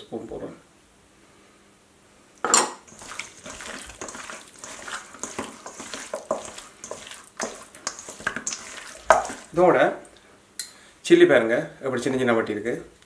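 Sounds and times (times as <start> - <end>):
wet slaps in metal bowl: 2.9 - 9.6.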